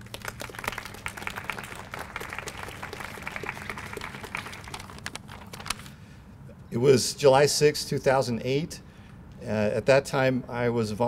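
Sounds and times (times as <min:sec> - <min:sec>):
small group applauding: 0:00.0 - 0:05.8.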